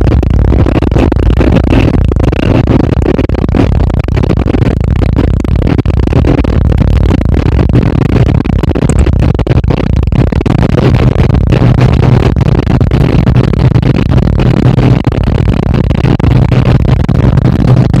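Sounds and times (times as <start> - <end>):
road and wind noise: 0.0 - 18.0.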